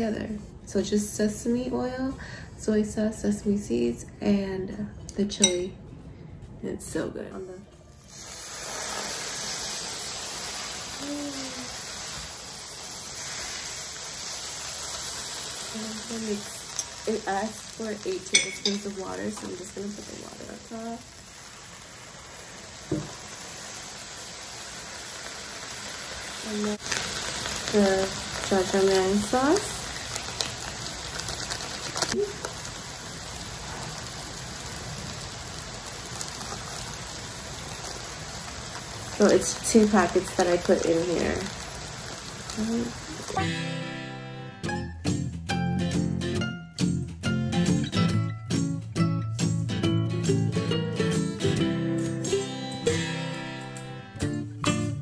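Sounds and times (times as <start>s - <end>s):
food sizzling in a pan: 7.8s - 44.3s.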